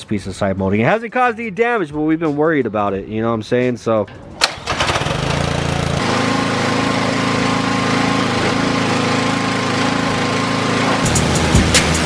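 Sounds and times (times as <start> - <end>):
pressure washer engine running: 4.6 - 12.0.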